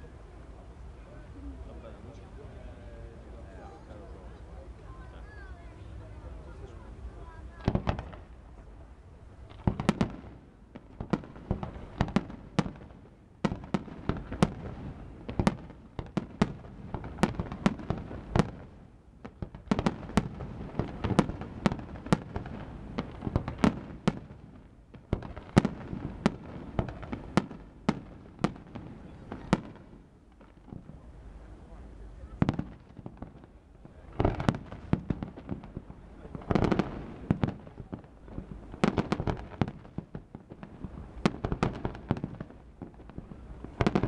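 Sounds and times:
fireworks bangs and cracks: 7.5s - 8.4s, 9.4s - 31.1s, 32.4s - 44.0s.

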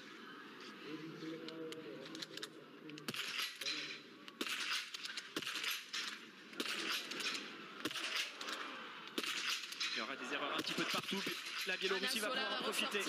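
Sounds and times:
rifle shots: 3.1s - 10.0s, 10.6s - 12.0s
crowd noise: 6.2s - 13.0s.

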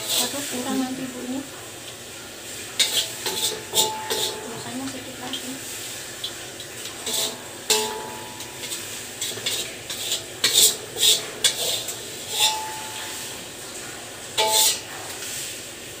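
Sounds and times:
metal spatula scraping a wok: 0.0s - 0.8s, 2.8s - 4.6s, 7.0s - 13.5s, 14.4s - 15.5s
wok ringing: 0.0s - 1.5s, 2.8s - 5.5s, 6.2s - 13.6s, 14.3s - 15.1s.

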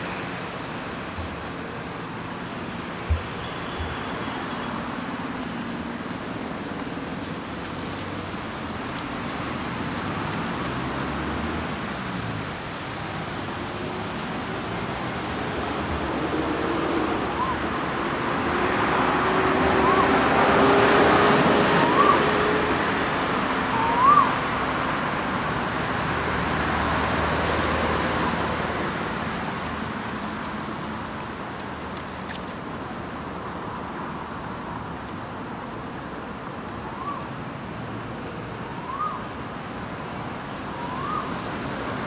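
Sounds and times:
road traffic passing: 0.0s - 42.0s
bird rising call notes: 19.8s - 20.2s, 21.8s - 22.3s, 23.7s - 24.4s, 36.9s - 37.3s, 38.7s - 39.3s, 40.8s - 41.4s.

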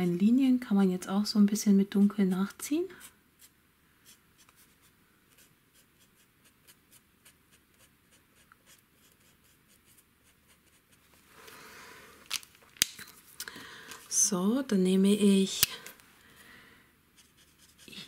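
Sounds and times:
marker scratching on card: 3.0s - 11.0s, 17.2s - 18.0s.

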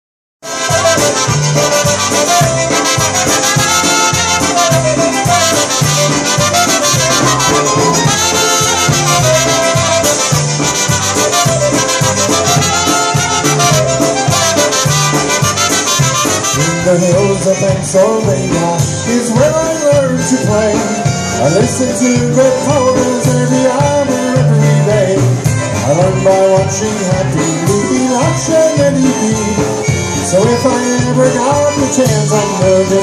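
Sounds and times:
trumpets: 0.4s - 18.8s
bass line: 0.4s - 33.0s
clarinet: 0.4s - 33.0s
drums: 0.4s - 33.0s.

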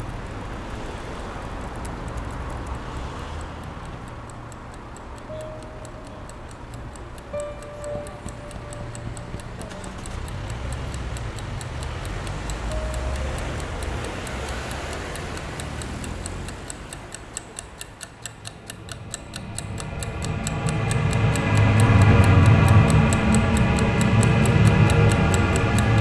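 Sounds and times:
clock ticking fast: 0.0s - 26.0s
held low tone: 5.3s - 10.1s, 12.7s - 14.2s.

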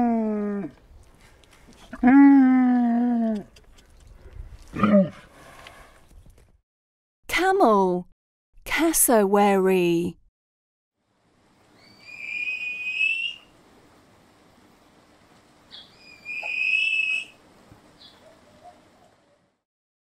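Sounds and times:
high whistled bird calls: 11.8s - 13.5s, 15.7s - 17.4s.

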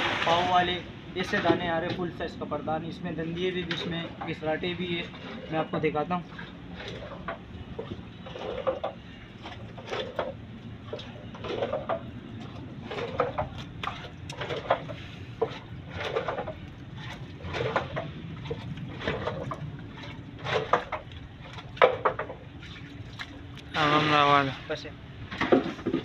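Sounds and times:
steady low hum: 0.0s - 26.0s
wet fish slapping and squelching: 3.7s - 24.1s.

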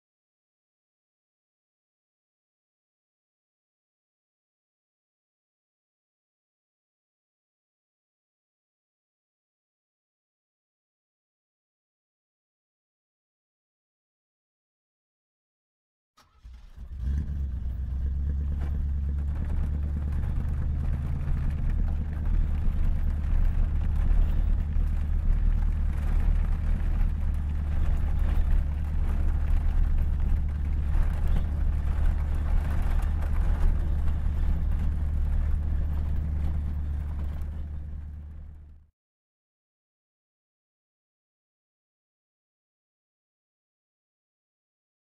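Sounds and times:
vehicle engine running: 16.2s - 38.9s.

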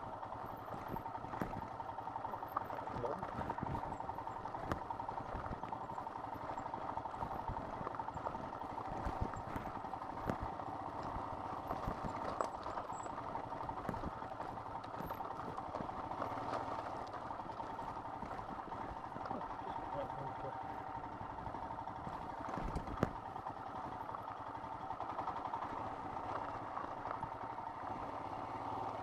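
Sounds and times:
motorcycle engine running: 0.0s - 29.0s
motorcycle rattling: 0.0s - 29.0s
stones clicking and knocking: 2.4s - 19.3s.

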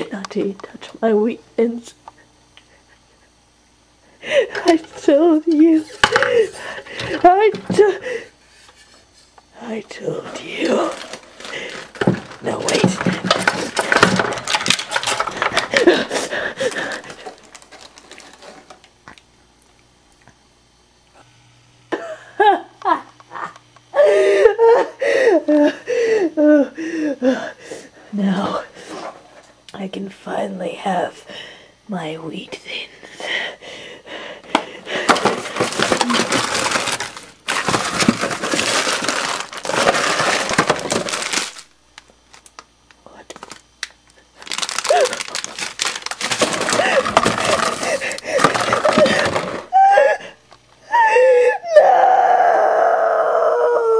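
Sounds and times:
plastic liner bag crinkling: 10.0s - 18.9s, 35.1s - 42.7s, 43.3s - 49.7s.

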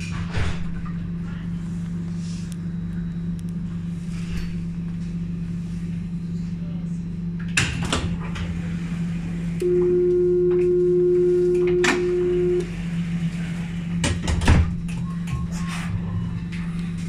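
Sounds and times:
tram equipment hum: 0.0s - 17.0s
door warning beep: 9.6s - 12.8s.

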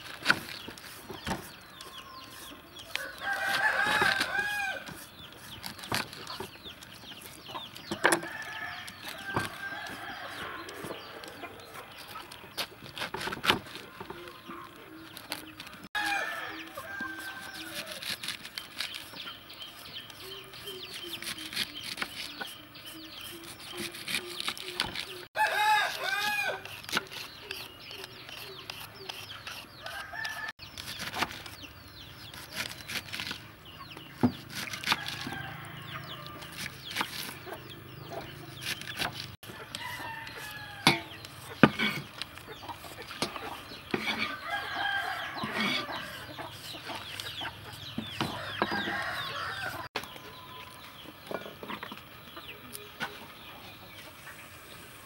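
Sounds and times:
vegetables being cut by hand: 0.0s - 31.6s, 32.2s - 33.5s, 34.1s - 35.6s, 36.2s - 50.1s
chickens clucking: 0.6s - 9.0s, 9.6s - 12.9s, 13.6s - 18.0s, 33.4s - 55.0s.

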